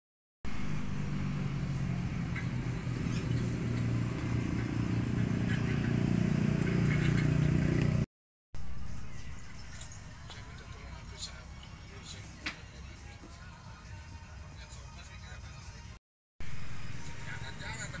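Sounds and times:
motor humming: 0.5 - 8.0.

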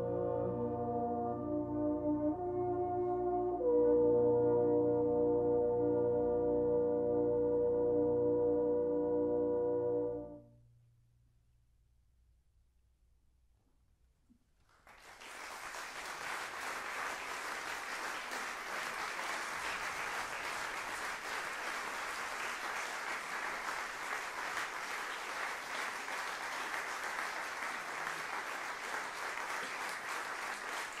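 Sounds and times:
audience applause: 14.8 - 31.0.

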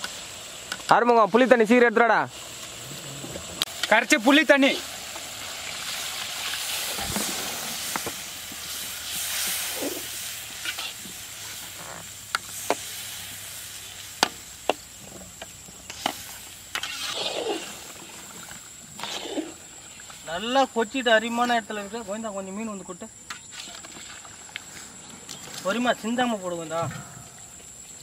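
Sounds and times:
gravy sizzling in a pan: 0.0 - 22.5
metal ladle scraping a pan: 8.7 - 13.0, 15.8 - 18.0.

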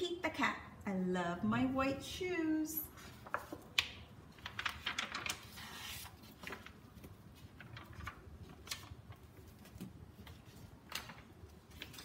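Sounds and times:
pages rustling: 3.0 - 12.0.

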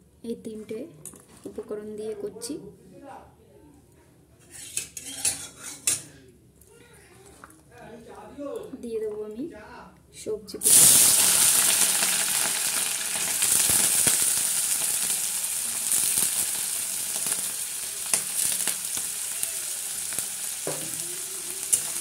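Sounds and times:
vegetables sizzling in hot oil: 10.6 - 22.0.

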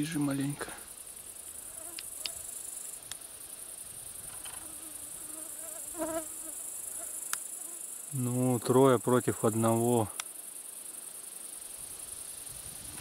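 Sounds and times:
insects chirring: 0.0 - 13.0
flying insect buzzing: 0.6 - 8.2
faint clicks: 10.1 - 10.3.

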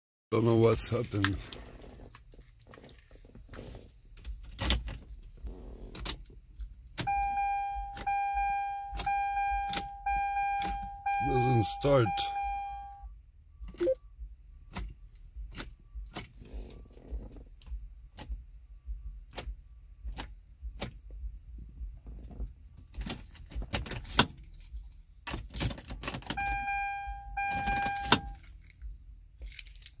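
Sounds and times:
key clicking in ignition: 5.9 - 11.6, 19.3 - 21.2, 22.9 - 28.8
electronic warning tone: 7.1 - 13.1, 13.7 - 14.0, 26.4 - 28.4.

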